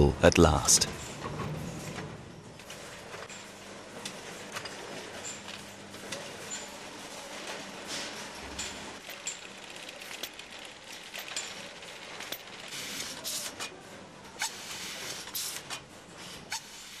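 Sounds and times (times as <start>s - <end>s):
packaging machine hissing: 12.7s - 13.7s, 14.4s - 15.8s, 16.5s - 17.0s.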